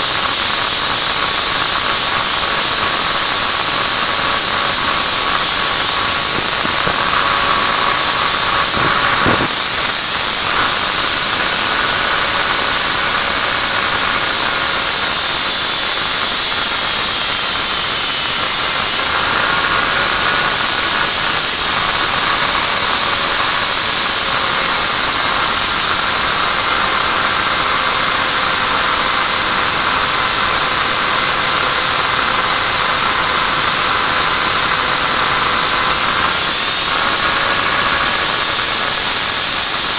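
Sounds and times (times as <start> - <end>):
angle grinder grinding metal: 0.0 - 14.1.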